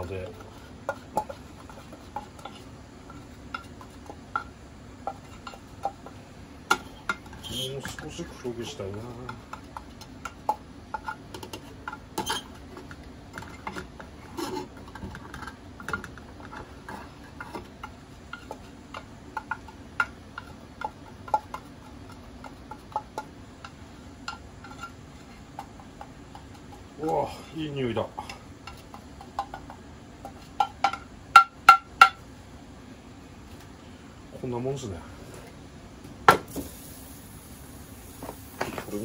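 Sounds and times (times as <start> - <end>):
turner scraping a metal pan: 6.8 - 9.8, 10.9 - 12.6, 13.3 - 15.6
gas burner rushing: 36.4 - 39.0.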